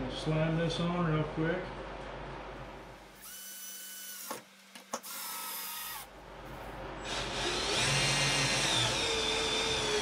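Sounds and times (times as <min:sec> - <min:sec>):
cordless drill motor whine: 0:05.0 - 0:06.1, 0:07.1 - 0:10.0.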